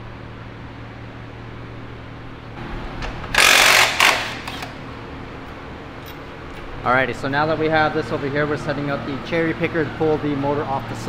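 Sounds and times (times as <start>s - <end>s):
low shop hum: 0.0s - 11.0s
hand-held power tool bursts: 3.3s - 4.8s.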